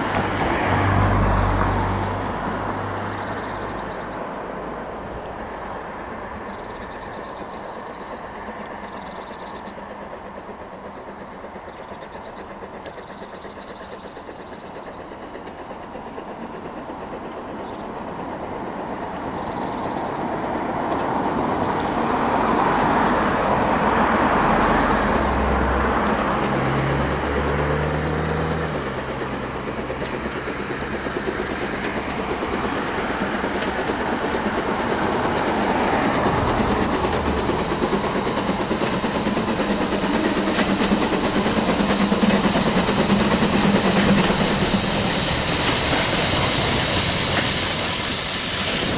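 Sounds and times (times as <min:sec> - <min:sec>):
steam locomotive running: 0:00.0 - 0:48.9
birds chirping: 0:06.0 - 0:10.5, 0:11.6 - 0:15.3.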